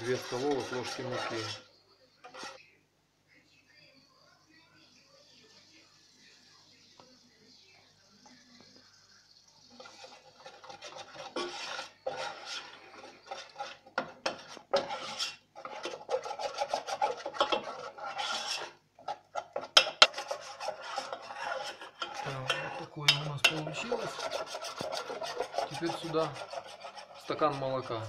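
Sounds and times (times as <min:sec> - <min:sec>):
whisk scraping a metal saucepan: 0:00.0 - 0:02.6, 0:09.6 - 0:28.0.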